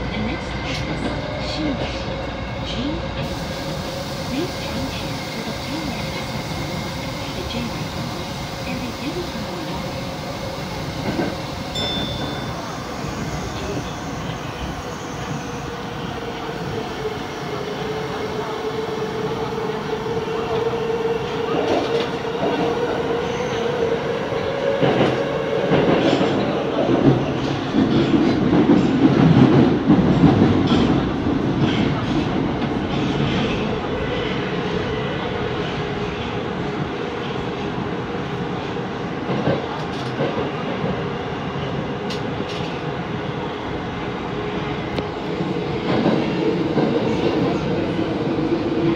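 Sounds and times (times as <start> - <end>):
subway train whine: 0.0 - 48.9
train wheels rumbling: 2.7 - 36.9.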